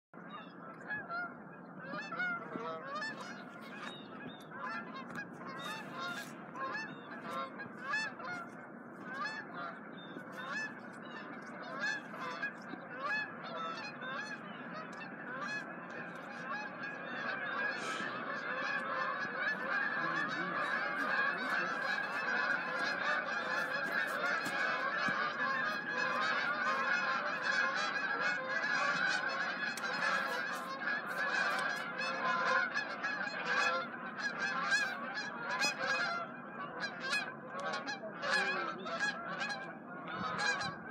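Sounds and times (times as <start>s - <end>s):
geese honking in flight: 0.2s - 40.9s.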